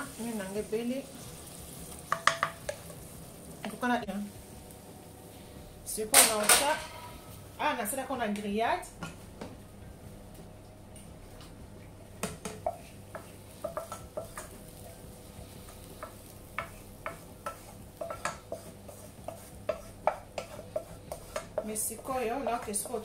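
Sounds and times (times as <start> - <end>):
wooden spoon scraping frying pan: 12.6 - 23.0.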